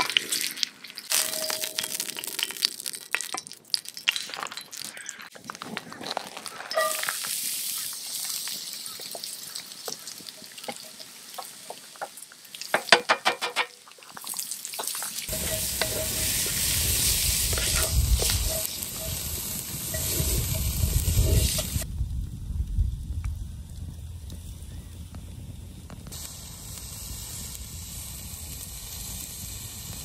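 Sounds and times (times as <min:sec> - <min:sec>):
vegetables sizzling in a pot: 0:00.0 - 0:21.9, 0:26.1 - 0:30.0
wind buffeting microphone: 0:15.3 - 0:30.0.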